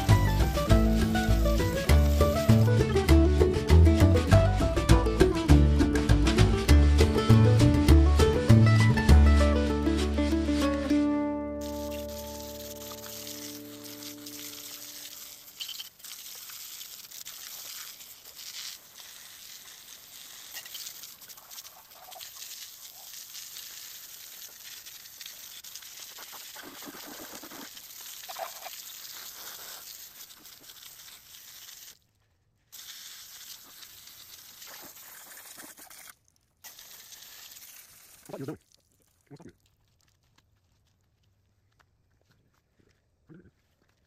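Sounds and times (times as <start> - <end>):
pressure washer spray hissing: 0.0 - 2.7.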